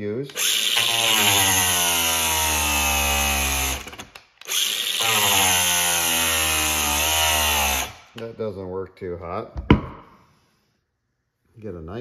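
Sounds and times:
angle grinder cutting rubber: 0:00.2 - 0:08.2.

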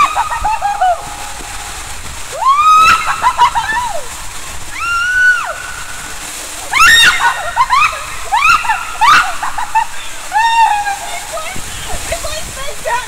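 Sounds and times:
water rushing through slide tube: 0:00.0 - 0:13.0.

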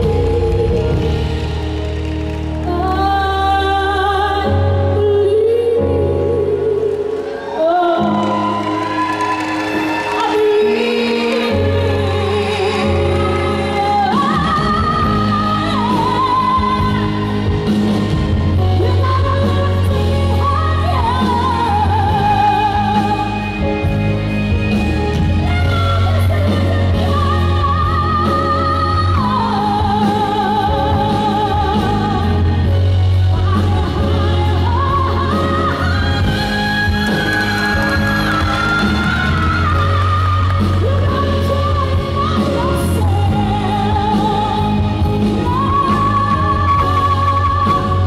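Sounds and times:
woman singing into microphone: 0:00.0 - 0:01.6, 0:02.6 - 0:48.0
amplified backing music: 0:00.0 - 0:48.0.

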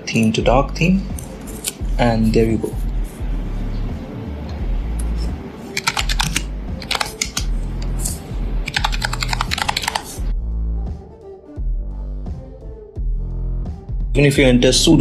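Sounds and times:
background music: 0:00.0 - 0:15.0
computer keyboard typing: 0:05.7 - 0:10.2.

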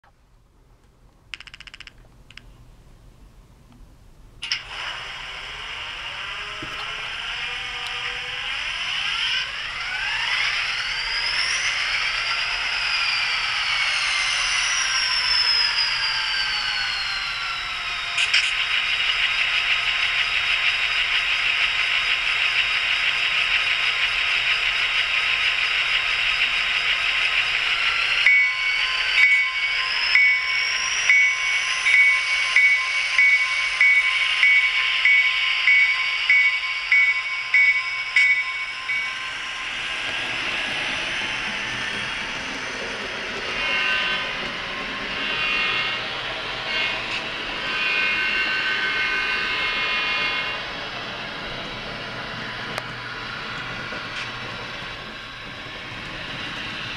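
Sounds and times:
whine rising in pitch: 0:04.4 - 0:56.9
locomotive engine drone from speaker: 0:04.5 - 0:35.1, 0:36.8 - 0:56.9
locomotive bell ringing: 0:28.2 - 0:41.6.

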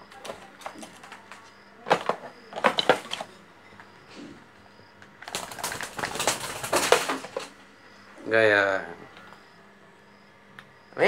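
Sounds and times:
parakeet clicking and scratching: 0:00.0 - 0:03.4, 0:05.0 - 0:07.6.

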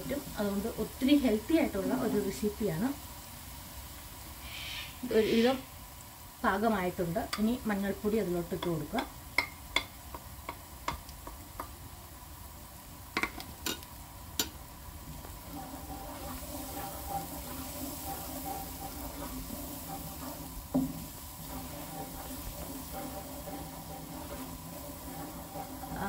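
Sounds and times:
paste sizzling in hot oil: 0:00.0 - 0:26.0
utensil knocking against pan: 0:13.2 - 0:13.8, 0:15.9 - 0:26.0
spatula stirring and scraping: 0:13.2 - 0:26.0.

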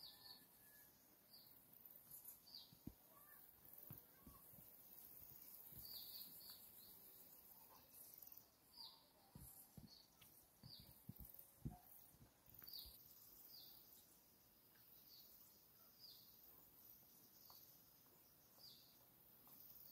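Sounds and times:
bird chirping: 0:00.0 - 0:19.9.

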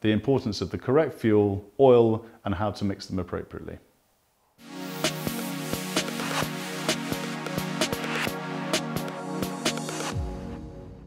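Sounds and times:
music with held tones: 0:04.6 - 0:11.0.

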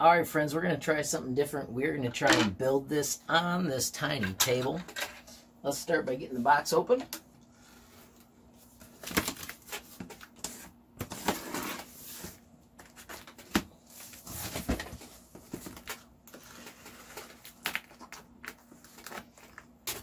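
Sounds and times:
packing tape peeling and tearing: 0:15.6 - 0:20.0.

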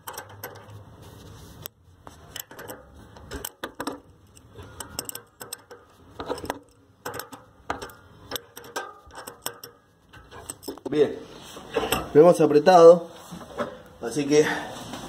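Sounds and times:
wrench clinking on metal nuts: 0:00.0 - 0:00.8, 0:02.3 - 0:11.1.

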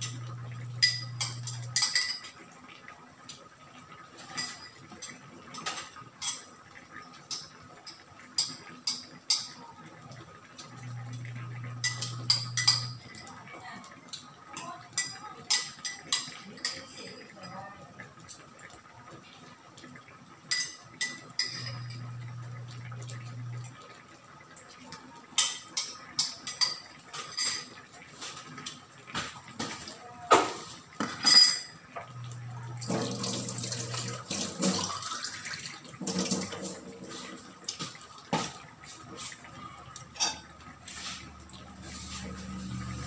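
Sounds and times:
running water: 0:00.0 - 0:43.0
spoon and dishes clinking: 0:00.8 - 0:02.3, 0:04.2 - 0:06.5, 0:11.8 - 0:13.3, 0:20.5 - 0:22.0, 0:31.0 - 0:31.8.

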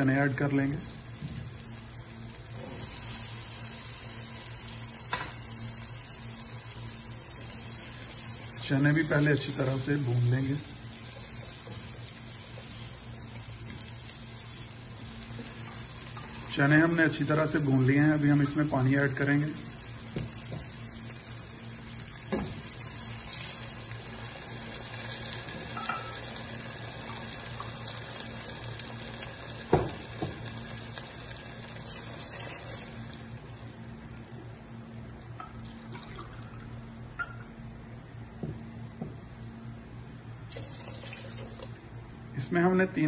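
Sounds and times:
water pouring into a hot pot: 0:22.6 - 0:33.7, 0:40.5 - 0:41.9
knocks on a pot: 0:29.7 - 0:30.4.

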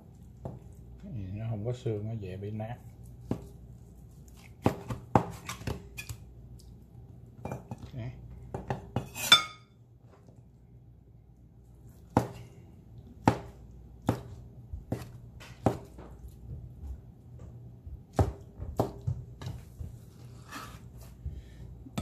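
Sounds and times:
knife chopping on wooden board: 0:03.2 - 0:03.6, 0:04.4 - 0:06.2, 0:12.1 - 0:12.4, 0:13.2 - 0:16.1, 0:18.1 - 0:19.7
knife scraping on cutting board: 0:09.0 - 0:09.6, 0:20.0 - 0:21.2.

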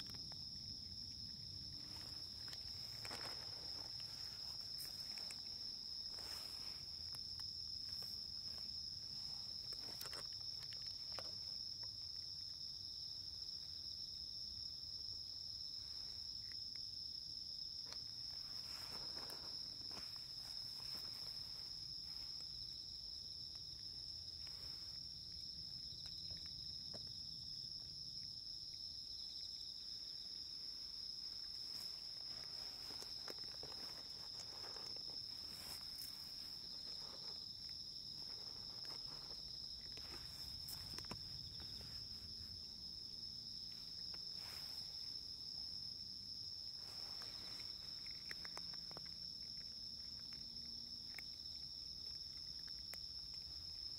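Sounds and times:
crickets chirping: 0:00.0 - 0:53.9
soft clicks and rustles: 0:01.6 - 0:12.2, 0:31.2 - 0:42.6.

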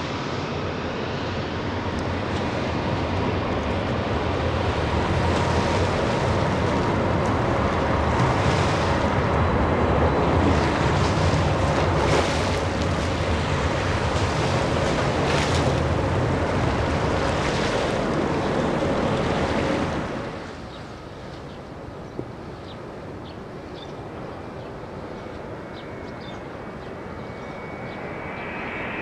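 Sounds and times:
faint engine whine: 0:00.0 - 0:29.0
jet engine rushing: 0:22.9 - 0:29.0.

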